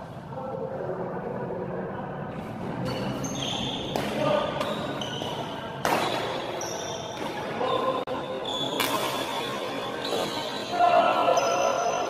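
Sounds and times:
rackets hitting shuttlecock: 2.8 - 7.6, 8.7 - 10.3
shoes squeaking on court: 2.8 - 10.8.

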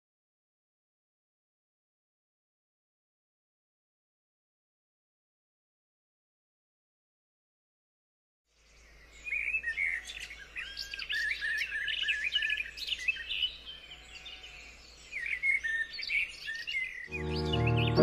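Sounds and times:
birds chirping and singing: 8.7 - 18.0.

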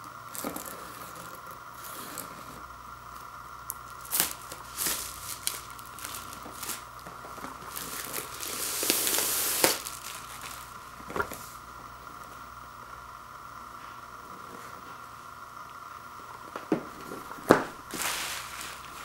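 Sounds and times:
plastic wrap tearing: 3.7 - 10.8, 17.4 - 19.0
plastic wrap crinkling: 3.7 - 11.6, 17.0 - 19.0.

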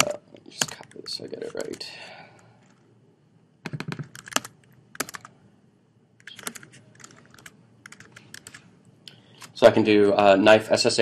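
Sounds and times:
computer keyboard typing: 0.0 - 1.8, 3.6 - 5.3, 6.2 - 8.7.

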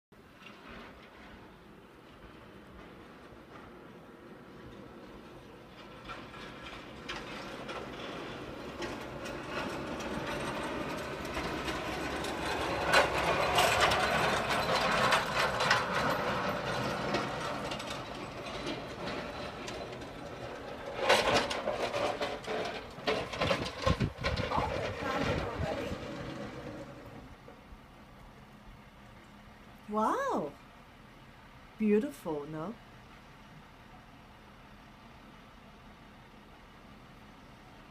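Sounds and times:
snowplow truck scraping and rattling: 0.2 - 31.7
pickup plow clattering: 4.8 - 27.7.

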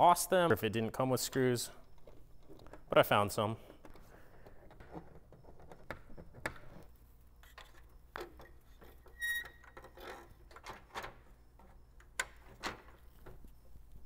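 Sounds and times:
small screws and plastic clicking: 1.8 - 2.9, 3.6 - 13.6
brief high squeak: 9.2 - 9.6.

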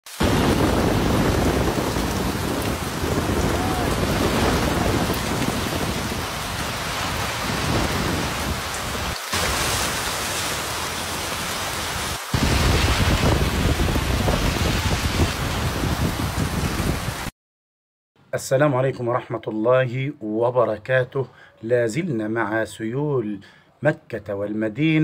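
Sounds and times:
falling rain: 0.0 - 17.3
water spray from car tyres: 0.1 - 15.5.

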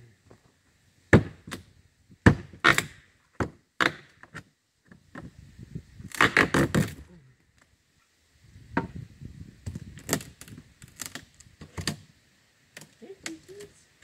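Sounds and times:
wooden boards knocking and cracking: 1.1 - 1.6, 2.2 - 5.3.

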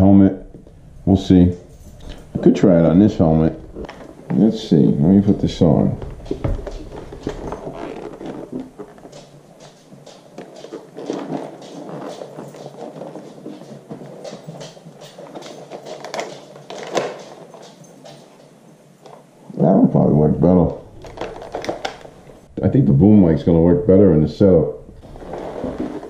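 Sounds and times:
helmet padding rustling: 3.2 - 19.3, 24.8 - 26.0.

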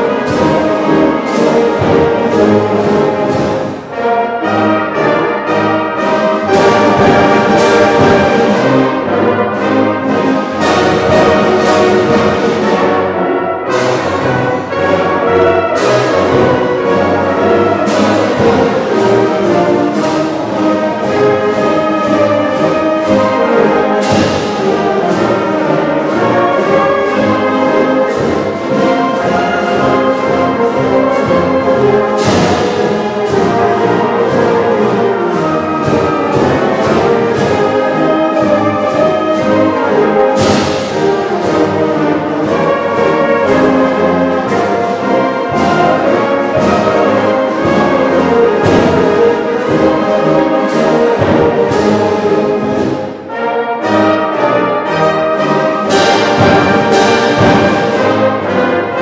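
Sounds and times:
concert band playing: 0.0 - 59.0
sharp percussion strikes: 13.8 - 53.2, 55.8 - 58.5.

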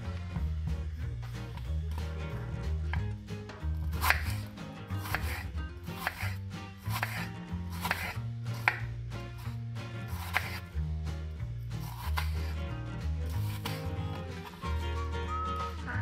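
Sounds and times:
background music: 0.0 - 16.0
knife slicing onto wooden board: 3.8 - 8.9, 10.1 - 10.7, 11.8 - 12.6, 13.3 - 14.2.

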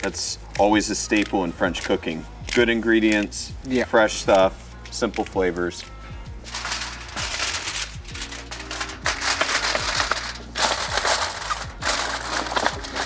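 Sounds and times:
background music: 0.0 - 13.0
aluminium foil crinkling: 6.4 - 13.0.

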